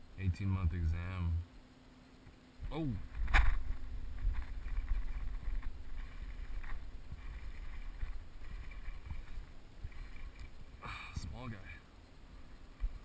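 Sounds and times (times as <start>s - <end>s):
faint ticks: 1.5s - 13.0s
wind rumble on microphone: 2.6s - 11.6s
water lapping against boat hull: 3.3s - 10.8s.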